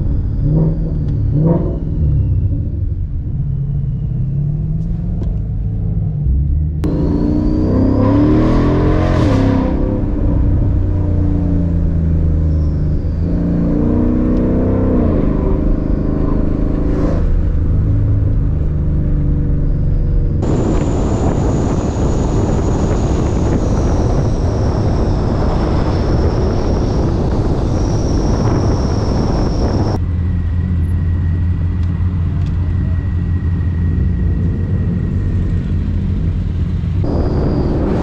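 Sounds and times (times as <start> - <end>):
road and wind noise: 0.0 - 38.0
car engine revving: 4.3 - 30.1, 31.4 - 38.0
faint high whine: 37.0 - 38.0.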